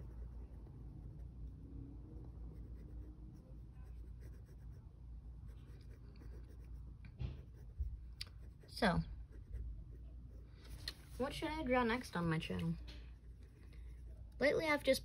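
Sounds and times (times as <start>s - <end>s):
pencil scratching on paper: 0.0s - 1.4s, 2.2s - 4.9s, 5.5s - 10.5s, 13.1s - 14.5s
low room hum: 0.0s - 15.0s.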